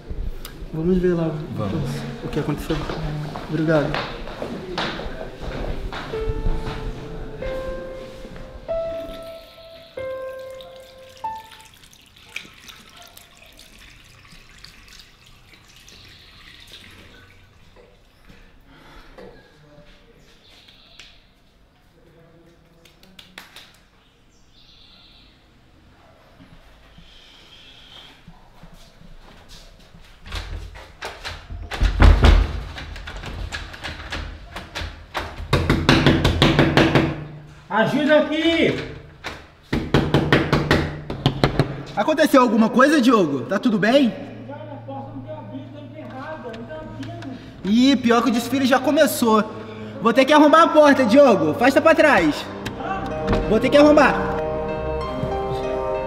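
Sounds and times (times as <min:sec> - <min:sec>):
small splashes and drips: 0:10.2 - 0:18.1
tap water running into basin: 0:10.2 - 0:18.1
door rattling in its frame: 0:30.3 - 0:37.3
door being banged and shoved: 0:31.0 - 0:37.4, 0:39.2 - 0:41.9, 0:52.2 - 0:53.5.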